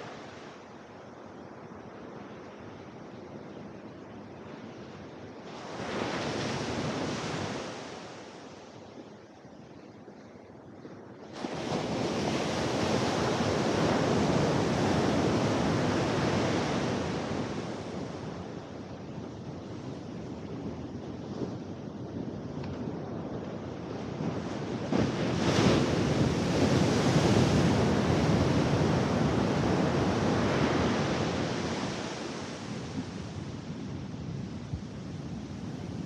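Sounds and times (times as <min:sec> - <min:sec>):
surf breaking on beach: 0:24.6 - 0:33.7.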